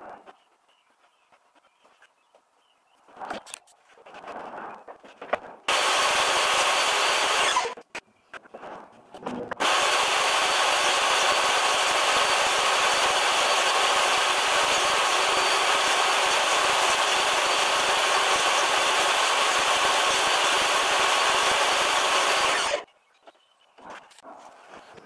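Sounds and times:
table saw cutting plywood: 0:05.7 - 0:07.8, 0:09.5 - 0:22.8.

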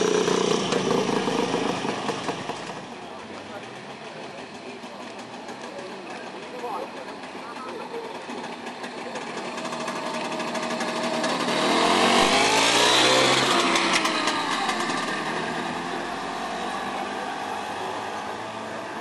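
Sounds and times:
motor scooter passing by: 0:00.0 - 0:02.8, 0:07.6 - 0:19.0.

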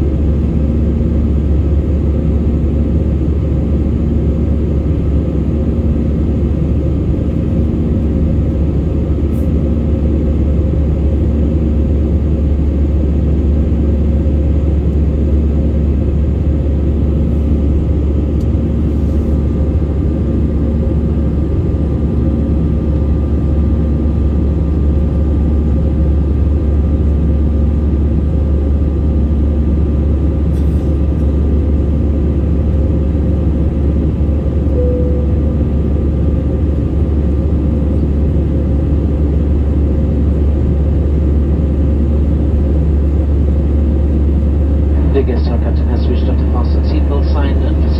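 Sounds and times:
jet cabin engine rumble: 0:00.0 - 0:47.9
faint hum: 0:30.5 - 0:38.7, 0:42.0 - 0:47.9.

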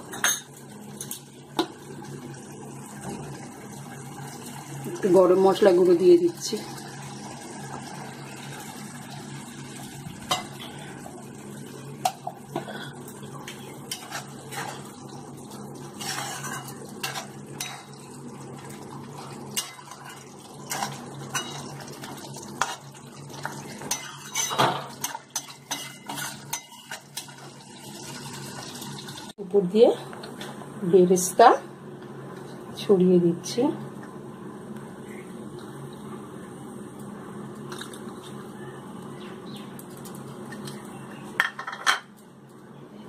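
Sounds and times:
metal spatula scraping pan: 0:16.0 - 0:17.8, 0:23.9 - 0:27.2.

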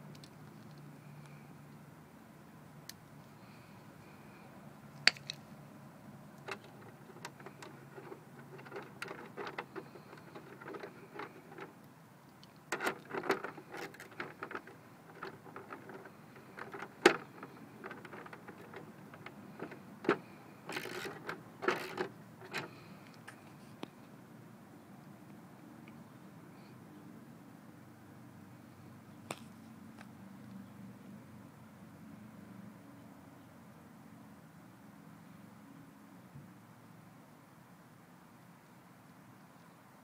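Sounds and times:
rustling and knocking: 0:06.4 - 0:11.8, 0:12.7 - 0:22.7
handling clicks and taps: 0:06.4 - 0:23.9.

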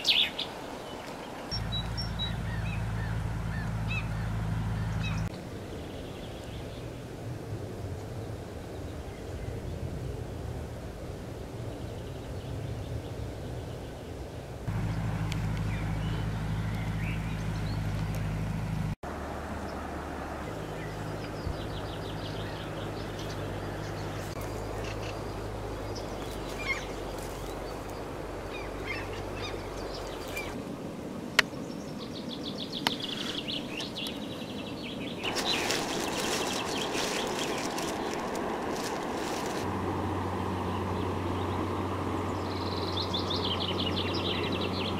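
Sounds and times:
songbirds chirping and trilling: 0:00.0 - 0:07.2, 0:11.5 - 0:44.9
steady low rumble: 0:01.5 - 0:30.9
broad rushing noise: 0:35.1 - 0:44.9.

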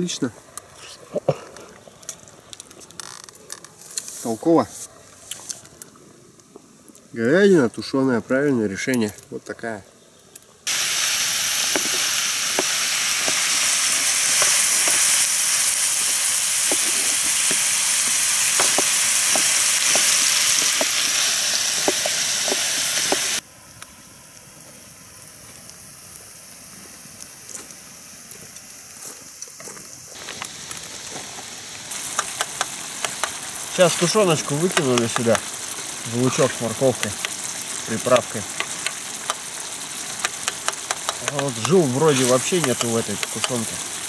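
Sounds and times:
vegetables sizzling in pan: 0:10.7 - 0:23.4, 0:24.2 - 0:44.0.

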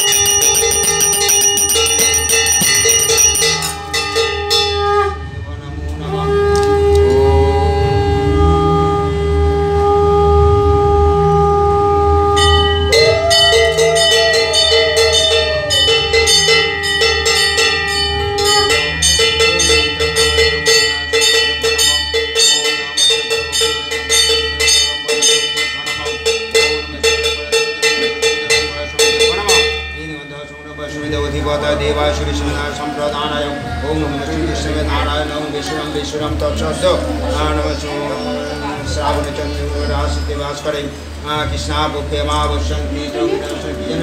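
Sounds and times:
hand bell ringing rapidly: 0:00.0 - 0:04.6, 0:12.6 - 0:32.2
conch shell blown: 0:00.0 - 0:36.4.

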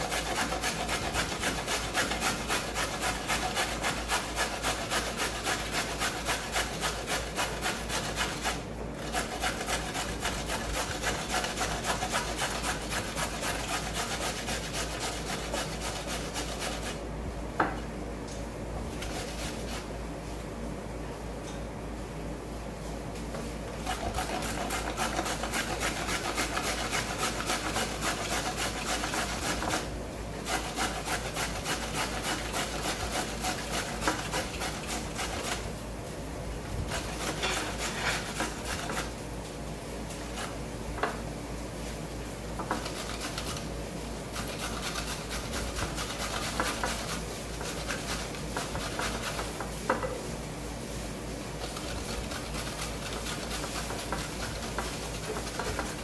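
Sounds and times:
carrot scraping on metal grater: 0:00.0 - 0:17.0, 0:23.8 - 0:35.7, 0:36.8 - 0:39.2, 0:42.6 - 0:43.7, 0:44.3 - 0:49.5, 0:51.6 - 0:56.0.

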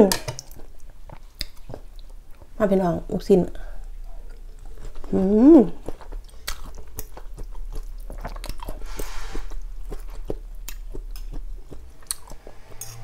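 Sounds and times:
close chewing with wet mouth clicks: 0:00.4 - 0:02.5, 0:05.7 - 0:12.5.

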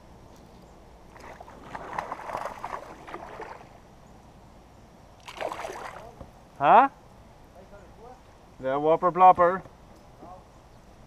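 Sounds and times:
fish thrashing water splashing: 0:01.1 - 0:03.8, 0:05.2 - 0:06.2.

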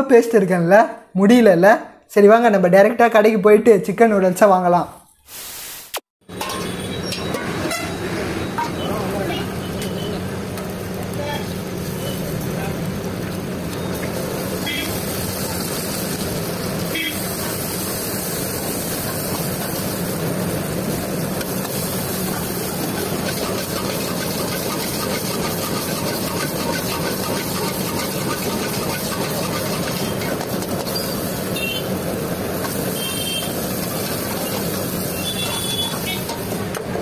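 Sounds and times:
noodles sizzling in a wok: 0:09.6 - 0:36.7.

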